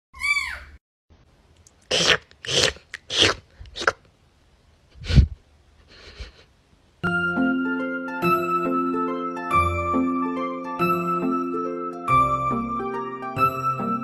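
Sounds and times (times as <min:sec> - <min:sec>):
short breathy noisy bursts: 0:01.9 - 0:04.0, 0:04.9 - 0:06.5.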